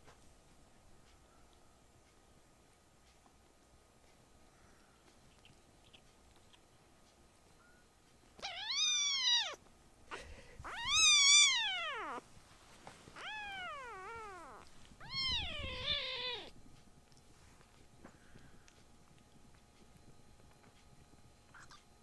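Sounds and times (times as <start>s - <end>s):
kitten meowing: 8.4s - 9.6s, 10.6s - 12.2s, 13.2s - 16.5s.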